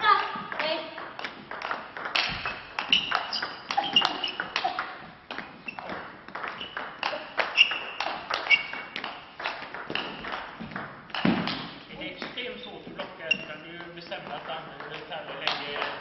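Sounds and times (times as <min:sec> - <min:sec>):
table tennis ball clicking: 0:01.0 - 0:11.6.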